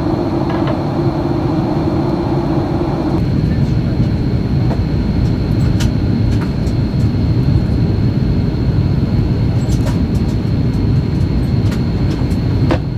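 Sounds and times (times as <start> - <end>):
thin high whine: 0.0 - 5.2
engine and rushing air roar: 0.0 - 12.9.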